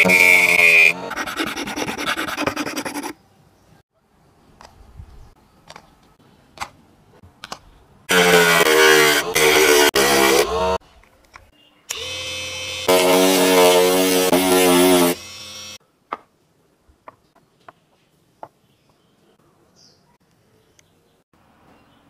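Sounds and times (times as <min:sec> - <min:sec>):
sanding plastic plate: 0:00.0 - 0:03.2
rotary tool whining: 0:11.9 - 0:15.8.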